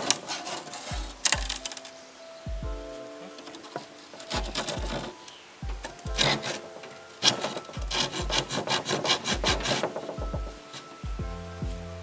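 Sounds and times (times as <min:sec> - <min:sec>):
handsaw cutting plywood: 0:07.2 - 0:10.2.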